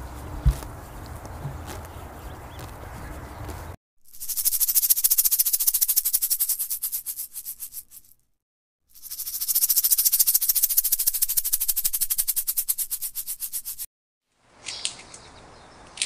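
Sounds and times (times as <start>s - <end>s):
snake tail rattling: 4.1s - 8.2s, 8.9s - 13.9s.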